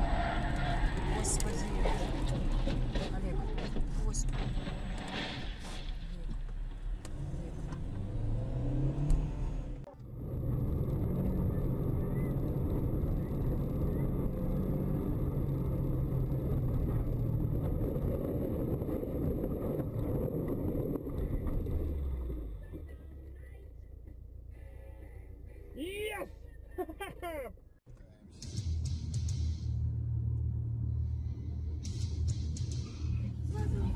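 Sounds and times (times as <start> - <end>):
car engine: 0.0 - 33.9
road noise: 0.0 - 33.9
heavy rumble through deep snow: 0.7 - 27.5.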